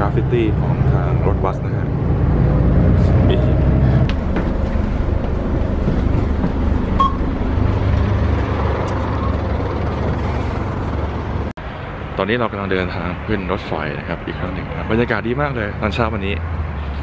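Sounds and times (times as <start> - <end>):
bus engine and road rumble: 0.0 - 17.0
short electronic beep: 7.0 - 7.2.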